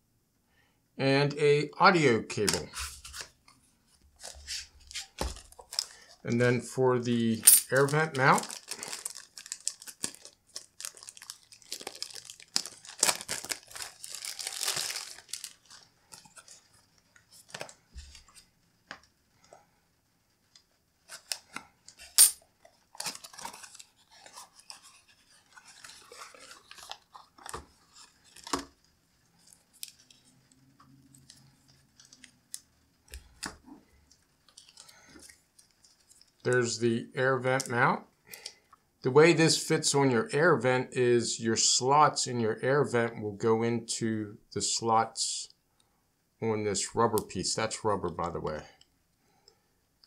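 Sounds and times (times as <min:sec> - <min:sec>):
plastic bag crinkling and tearing: 0:04.2 - 0:06.3, 0:07.6 - 0:18.4, 0:21.0 - 0:33.8, 0:34.4 - 0:36.5.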